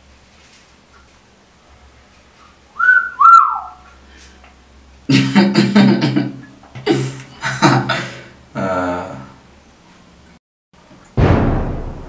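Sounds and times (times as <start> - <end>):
two-note wolf whistle: 2.8 - 3.8.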